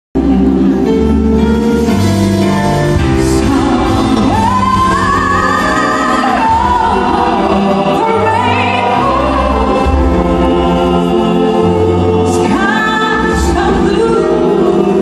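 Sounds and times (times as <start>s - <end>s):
live band with keyboards and bass: 0.2s - 15.0s
woman singing into microphone: 3.3s - 10.1s, 12.2s - 15.0s.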